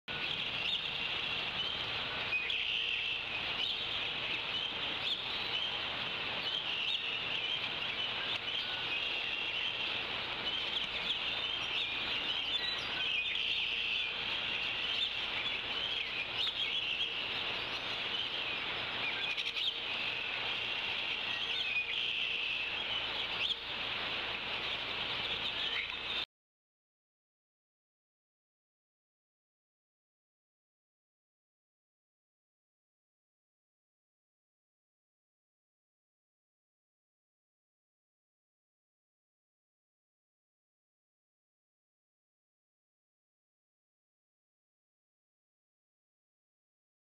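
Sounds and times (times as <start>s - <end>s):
birds chirping: 0.1s - 26.3s.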